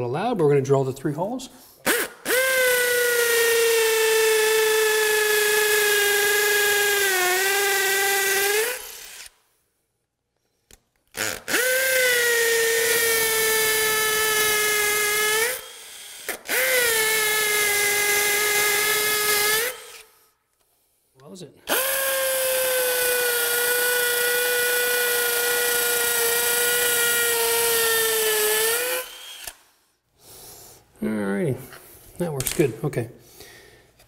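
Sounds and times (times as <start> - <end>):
drill drilling into concrete: 1.9 - 9.4, 11.1 - 20.1, 21.7 - 29.8.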